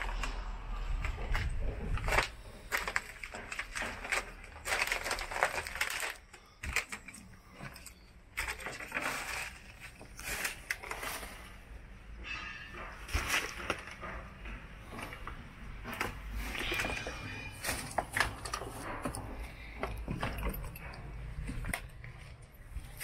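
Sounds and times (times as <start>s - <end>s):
footsteps crunching over debris: 0.0s - 11.9s.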